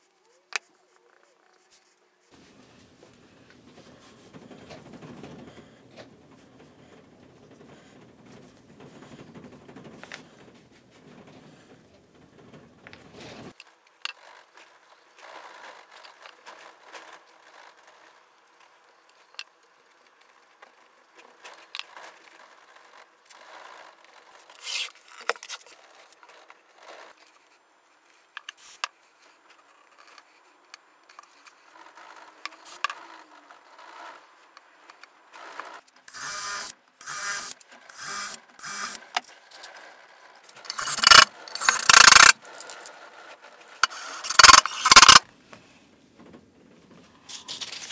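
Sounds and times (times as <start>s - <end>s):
rubbing and handling noises: 0.0s - 13.6s, 37.4s - 47.9s
hand scraping wood: 1.7s - 13.6s, 40.5s - 46.0s.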